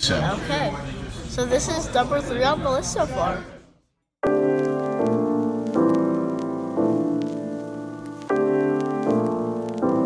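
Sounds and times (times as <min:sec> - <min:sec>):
piano chords: 0:04.2 - 0:10.0.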